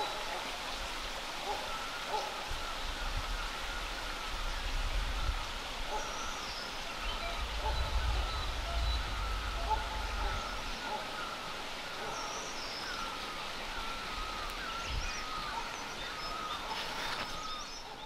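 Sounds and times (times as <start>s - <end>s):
steady background hiss: 0.0s - 18.0s
birds chirping: 1.4s - 18.0s.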